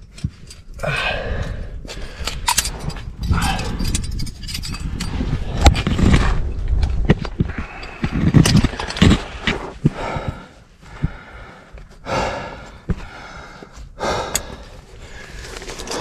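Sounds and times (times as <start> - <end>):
climbing gear clinking: 0.0 - 10.2, 12.9 - 16.0
person breathing hard and straining: 0.6 - 6.4, 7.3 - 16.0
gear scraping against rock: 2.1 - 9.9, 14.8 - 16.0.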